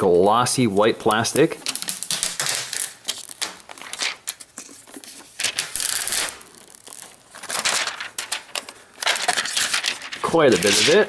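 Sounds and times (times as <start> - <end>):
plastic film peeling off: 1.0 - 11.0.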